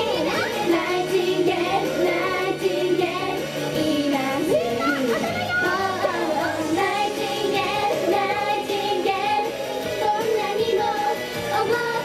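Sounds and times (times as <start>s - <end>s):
young female voices singing pop: 0.0s - 12.0s.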